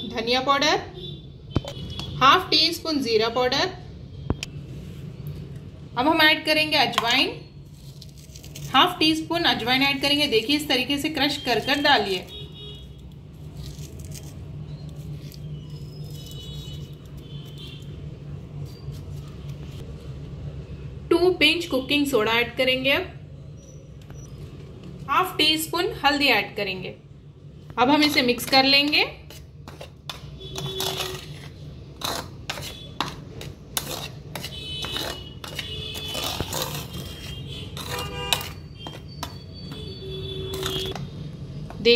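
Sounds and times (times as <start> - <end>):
spoon scraping and clinking in bowl: 29.2 - 39.8.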